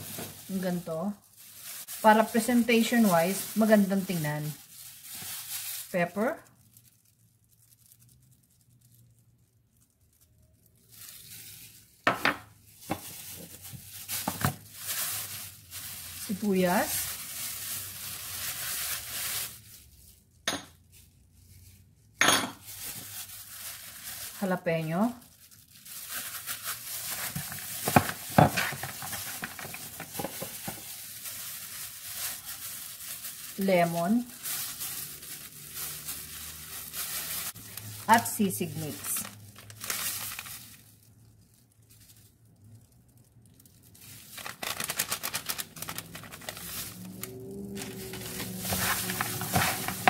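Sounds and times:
plastic gloves crinkling: 0:00.0 - 0:50.0
wet rustling of food: 0:00.0 - 0:50.0
pepper shaken from container: 0:46.0 - 0:50.0.

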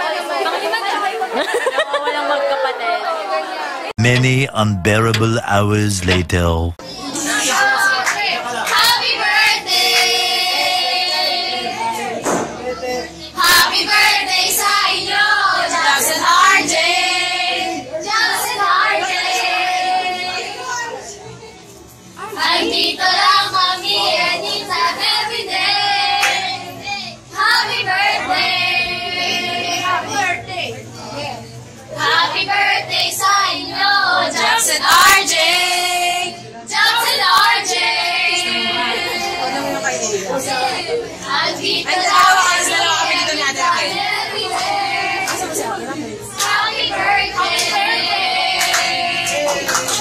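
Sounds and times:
high voices singing: 0:04.0 - 0:06.8.

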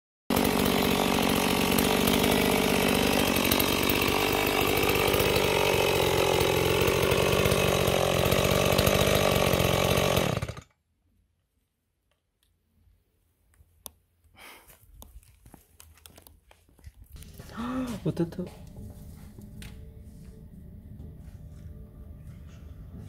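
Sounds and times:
chainsaw engine running: 0:00.3 - 0:10.7, 0:17.2 - 0:19.4.

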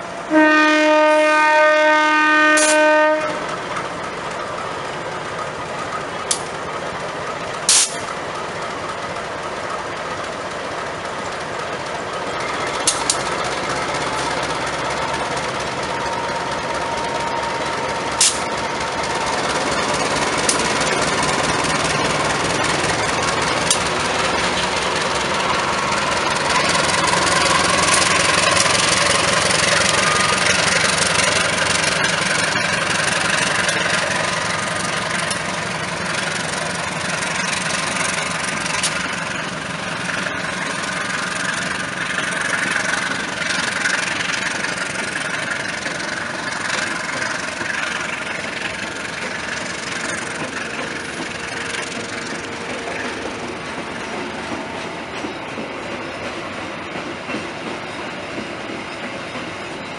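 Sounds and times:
train rolling past: 0:00.0 - 0:59.9
wheels clacking on rails: 0:00.0 - 0:59.9
locomotive horn blast: 0:00.3 - 0:03.5.

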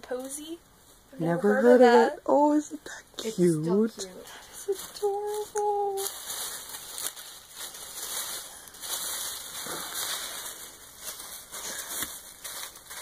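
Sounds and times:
tissue paper rustling: 0:04.0 - 0:13.0.

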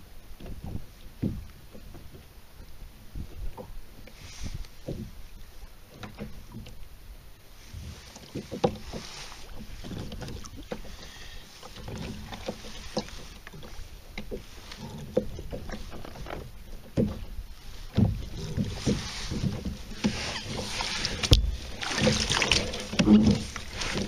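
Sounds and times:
knocks and taps on plastic kayak: 0:00.4 - 0:02.2, 0:16.4 - 0:17.3, 0:17.9 - 0:20.2.

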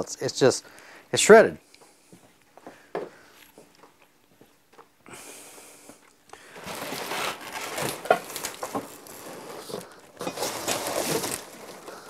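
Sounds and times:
cardboard box pulled open: 0:10.4 - 0:11.9.

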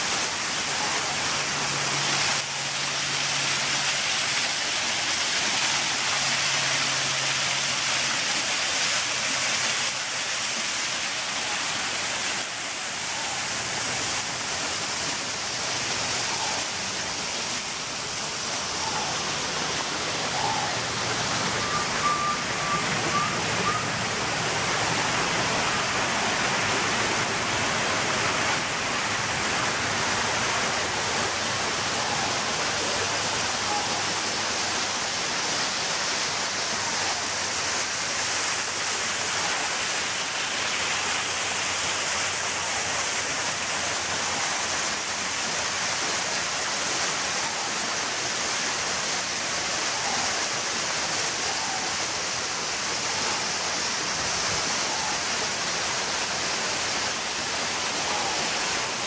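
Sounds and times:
steady rushing hiss: 0:00.0 - 0:59.0.

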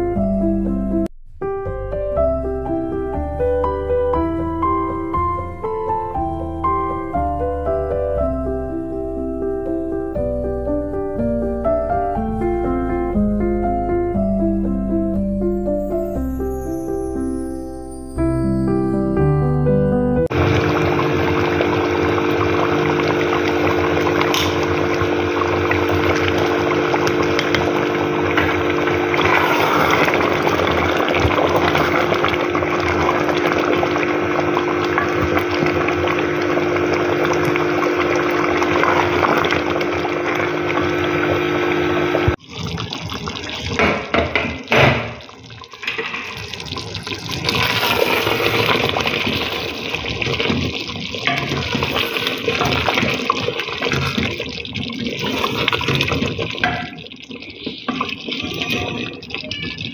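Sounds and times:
gravy bubbling in a pot: 0:20.3 - 0:59.9
spatula stirring: 0:45.5 - 0:59.9.

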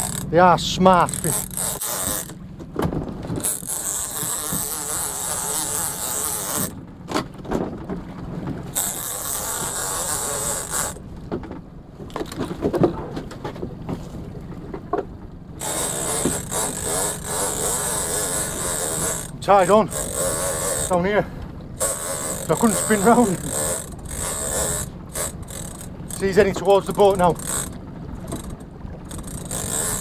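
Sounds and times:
fishing reel clicking and whirring: 0:00.0 - 0:02.4, 0:03.4 - 0:06.8, 0:08.7 - 0:11.0, 0:15.6 - 0:21.2, 0:21.8 - 0:30.0.

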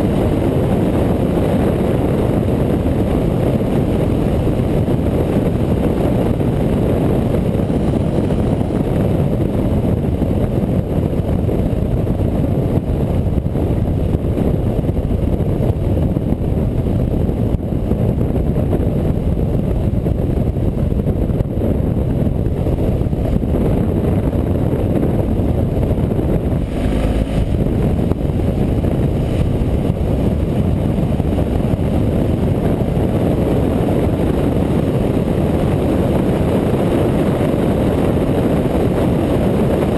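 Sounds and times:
motorcycle engine drone: 0:00.0 - 0:39.9
wind rumble on microphone: 0:00.0 - 0:39.9.

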